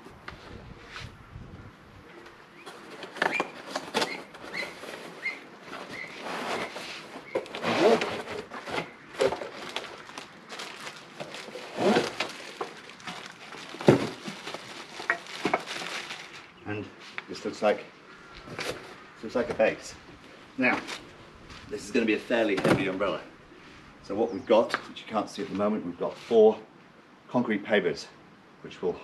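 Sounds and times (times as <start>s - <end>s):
cardboard and plastic rustling: 2.6s - 17.3s, 18.4s - 19.7s.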